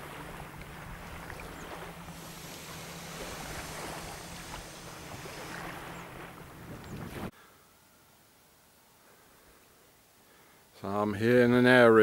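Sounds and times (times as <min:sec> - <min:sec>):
wind buffeting microphone: 0:00.0 - 0:07.3
low steady hum: 0:00.0 - 0:10.5.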